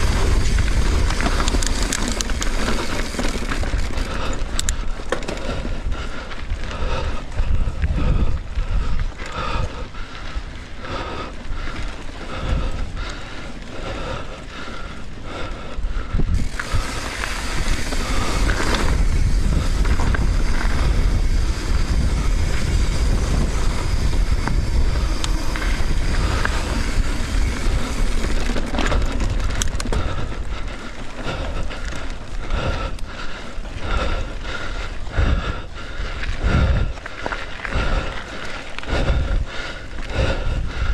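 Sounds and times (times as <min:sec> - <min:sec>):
wind on microphone: 0:00.0 - 0:04.8, 0:05.5 - 0:10.4, 0:15.9 - 0:30.6, 0:35.1 - 0:37.0
bike tyres rolling on dirt: 0:00.0 - 0:40.9.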